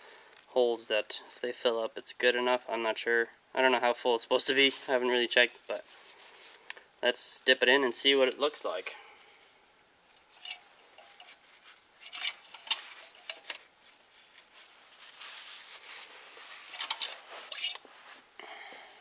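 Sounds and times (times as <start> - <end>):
cloth rubbing: 10.3 - 18.3
dipstick clicking and scraping: 16.7 - 17.9.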